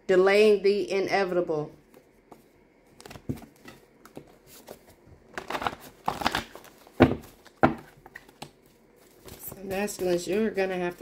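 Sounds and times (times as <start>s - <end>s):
cards rustling and clicking: 3.0s - 11.0s.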